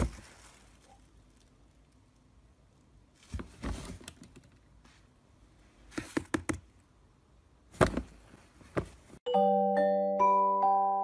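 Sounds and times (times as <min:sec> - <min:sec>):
plastic knocks and clatters: 0:07.7 - 0:09.1.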